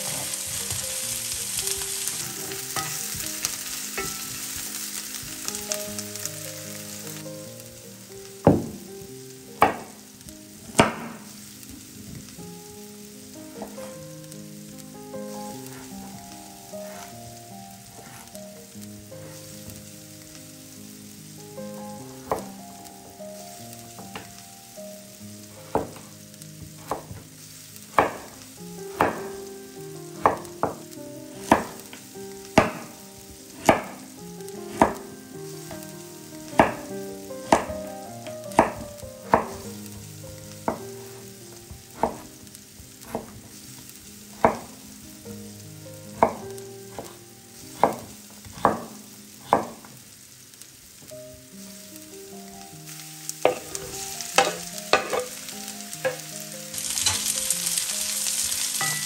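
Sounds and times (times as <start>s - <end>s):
vegetables frying in oil: 0.0s - 59.0s
utensil knocking against pan: 2.8s - 3.3s, 4.0s - 4.4s, 9.6s - 9.9s, 28.0s - 28.3s, 53.4s - 53.7s, 54.4s - 55.3s.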